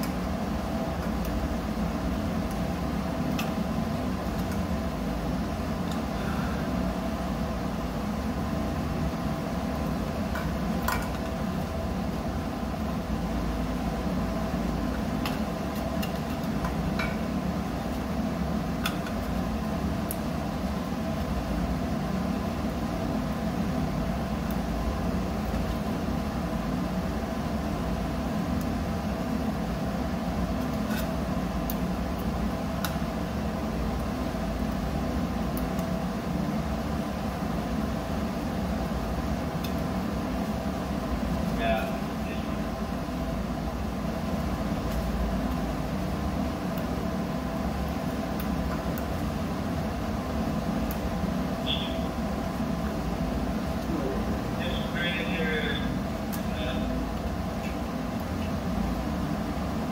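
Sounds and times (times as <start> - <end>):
low machinery hum: 0.0 - 59.9.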